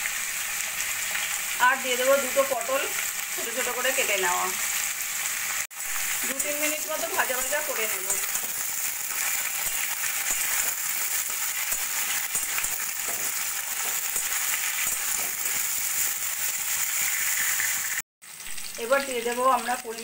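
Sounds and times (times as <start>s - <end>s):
vegetables sizzling in oil: 0.0s - 20.0s
spatula scraping and tapping: 7.4s - 8.7s, 9.6s - 16.1s.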